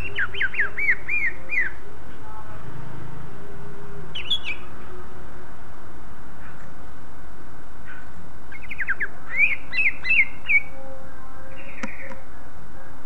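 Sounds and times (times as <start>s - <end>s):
bird whistling song: 0.0s - 1.8s, 4.1s - 4.9s, 7.8s - 12.3s
steady hiss: 0.0s - 13.0s.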